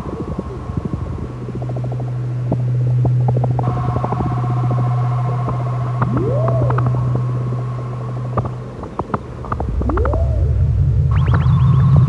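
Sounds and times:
low synth drone: 0.0 - 12.0
whale-like gliding call: 3.6 - 8.6, 9.5 - 12.0
held higher synth tones: 5.7 - 7.6, 9.7 - 12.0
scattered clicks: 6.0 - 7.0, 8.3 - 10.2.

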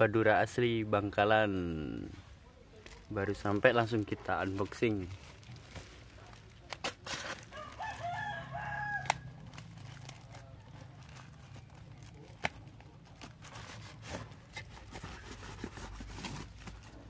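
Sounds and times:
plastic parcel rustling: 2.0 - 17.0
rooster crowing: 7.5 - 9.5.

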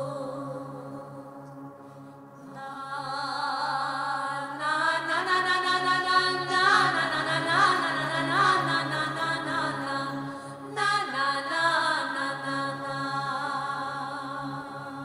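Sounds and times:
chanted vocal line: 0.0 - 15.0.

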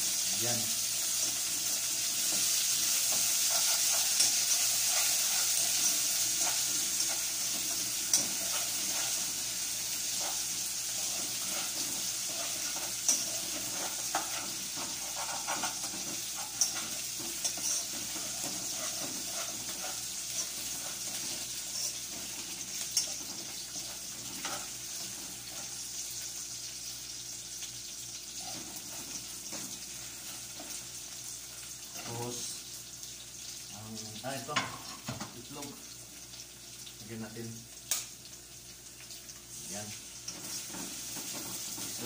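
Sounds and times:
food sizzling in oil: 0.0 - 42.0.

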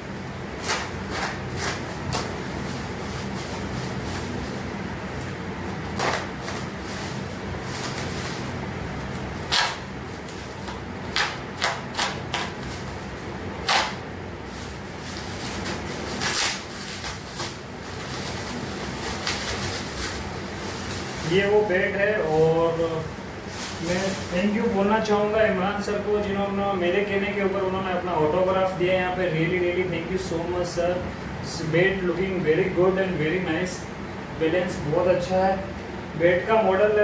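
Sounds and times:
steady low hum: 0.0 - 37.0
plastic wrapping crinkling: 0.5 - 25.4.

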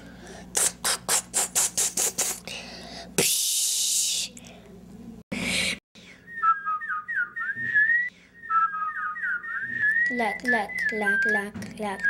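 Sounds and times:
high whistled chirps: 6.3 - 12.0.

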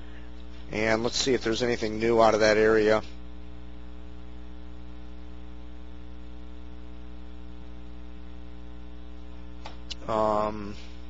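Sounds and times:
electrical mains hum: 0.0 - 11.0
person narrating: 0.7 - 3.1, 9.9 - 10.9.

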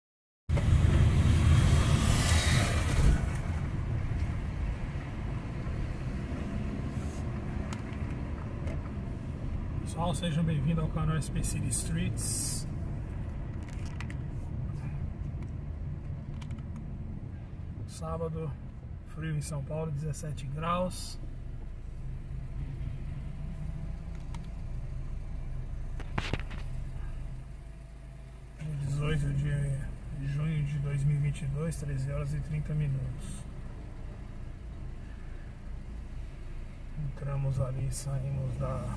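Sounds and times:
car engine and road rumble: 0.5 - 38.9
car engine running: 20.4 - 38.9.

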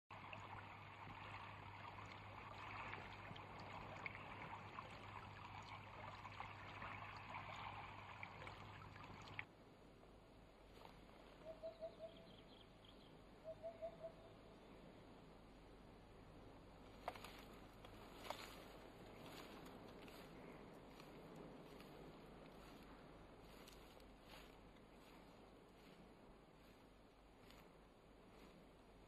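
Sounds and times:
stream water rushing: 0.1 - 9.5.

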